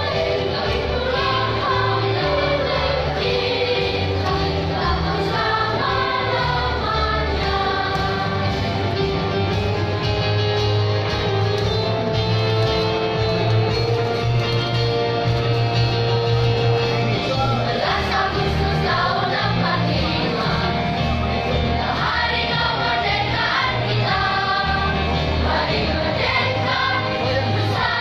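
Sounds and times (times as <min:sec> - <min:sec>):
children's choir singing: 0:00.0 - 0:09.7, 0:17.2 - 0:28.0
instrumental accompaniment: 0:00.0 - 0:28.0.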